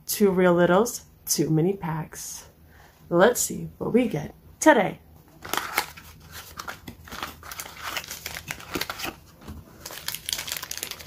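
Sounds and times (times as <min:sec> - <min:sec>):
plastic bag crinkling: 0:05.4 - 0:11.0.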